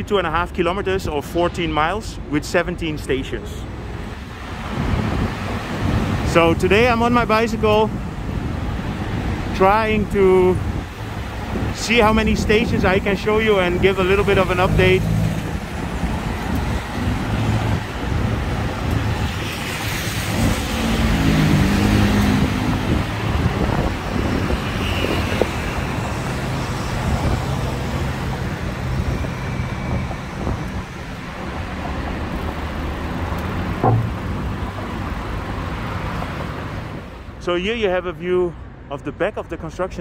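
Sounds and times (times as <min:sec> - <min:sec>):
road traffic passing: 0:00.0 - 0:39.8
heavy vehicle engine drone: 0:05.8 - 0:25.0, 0:25.8 - 0:35.8
short knock: 0:33.8 - 0:34.5.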